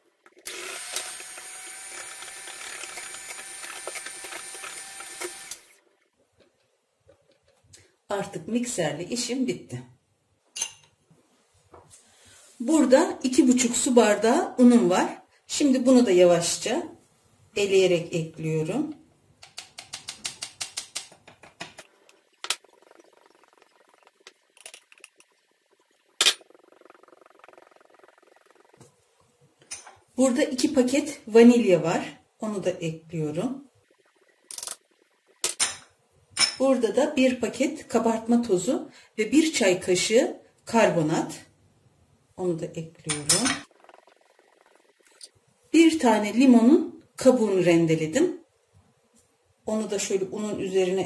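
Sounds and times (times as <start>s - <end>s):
electric hand mixer running: 0.4s - 5.8s.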